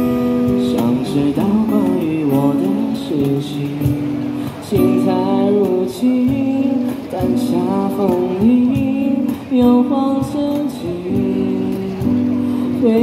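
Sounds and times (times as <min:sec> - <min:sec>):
acoustic guitar: 0:00.0 - 0:13.0
person singing a slow song: 0:00.0 - 0:13.0.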